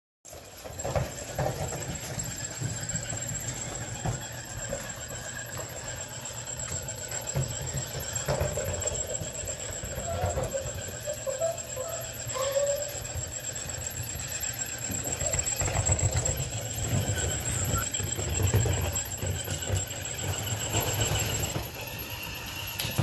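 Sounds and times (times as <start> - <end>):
puppies scuffling: 0.3 - 23.0
puppy whining: 0.8 - 23.0.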